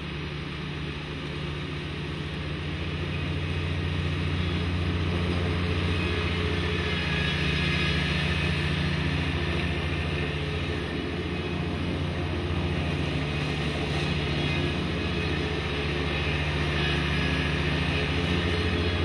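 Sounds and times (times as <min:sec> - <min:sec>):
ride-on mower engine drone: 0:00.0 - 0:19.0.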